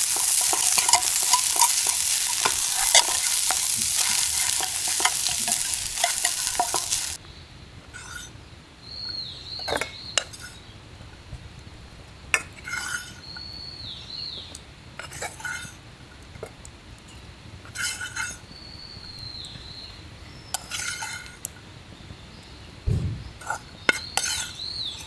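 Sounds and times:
metal utensil clinking on cookware: 0.0 - 7.2.

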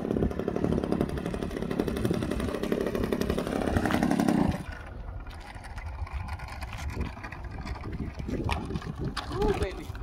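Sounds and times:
model airplane engine buzzing: 0.0 - 4.7.

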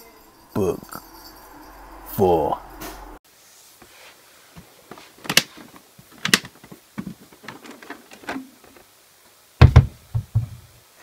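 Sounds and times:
plastic case latch clicks: 6.2 - 6.5.

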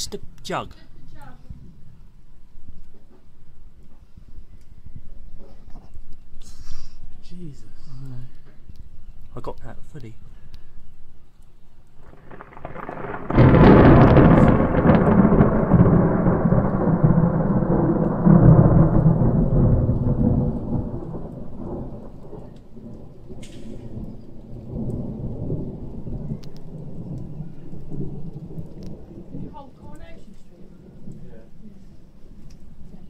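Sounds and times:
thunder crack: 12.0 - 31.9
thunder rumble: 12.0 - 33.0.

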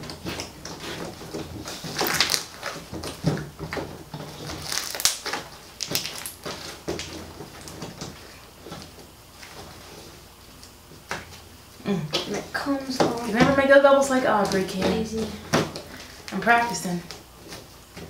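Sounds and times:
slime squelching and crackling: 0.0 - 3.2, 4.2 - 9.8.

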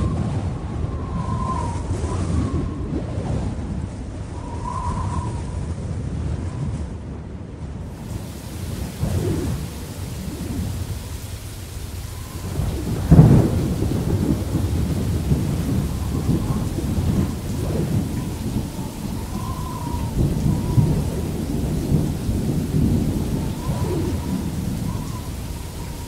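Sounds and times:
low thunder rumbling: 0.0 - 26.0
rain: 0.0 - 26.0
loud thunderclap: 7.9 - 26.0.

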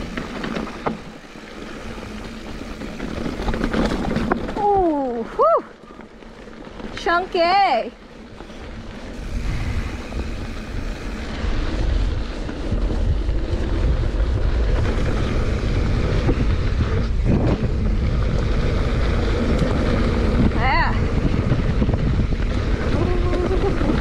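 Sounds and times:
bike clicks and rattles: 0.0 - 24.0
bike tyres rolling over dirt: 0.0 - 24.0
wind buffeting microphone: 6.7 - 24.0.

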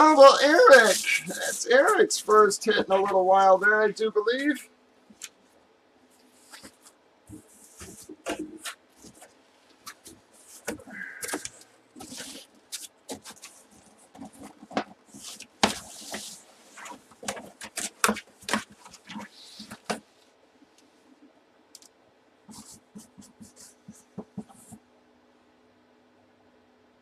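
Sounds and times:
marker scratching on cardboard: 6.4 - 9.3, 22.5 - 24.8.

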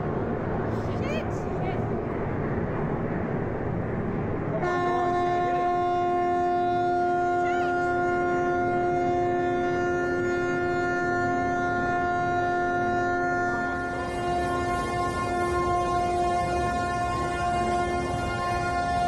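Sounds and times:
ship horn blast: 4.6 - 19.0.

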